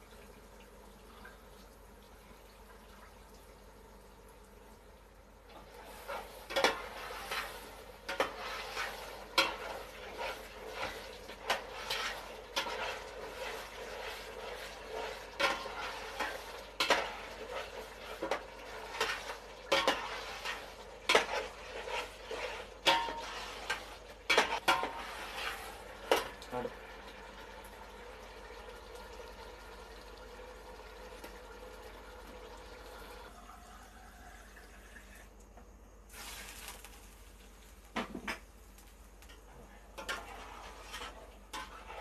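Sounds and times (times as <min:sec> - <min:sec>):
oil sizzling: 0:00.0 - 0:35.4, 0:36.0 - 0:42.0
spoon scraping a metal pot: 0:06.0 - 0:25.8, 0:39.9 - 0:42.0.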